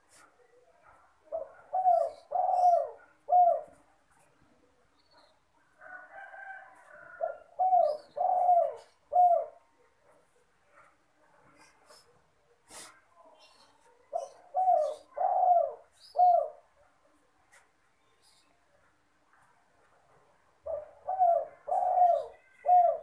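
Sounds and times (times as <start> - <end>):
dove cooing: 0.8 - 3.9, 6.9 - 9.8, 14.1 - 16.8, 20.6 - 23.0.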